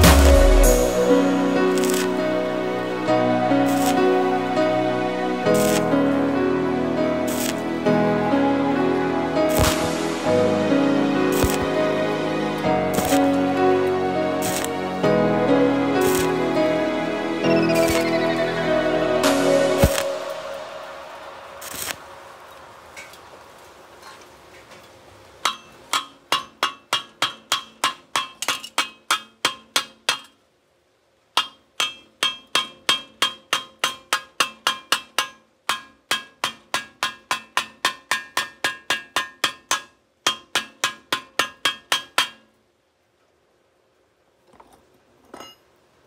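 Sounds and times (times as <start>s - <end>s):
chipping hammer tapping metal: 7.3s - 7.6s, 9.5s - 9.8s, 11.3s - 11.7s, 12.9s - 13.3s, 14.4s - 14.7s, 31.4s - 42.4s.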